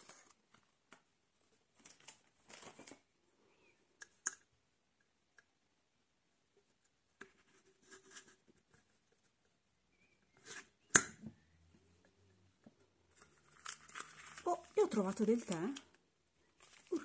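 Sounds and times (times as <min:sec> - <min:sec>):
plastic wrapper rustle: 0:01.4 - 0:03.1, 0:13.1 - 0:17.0.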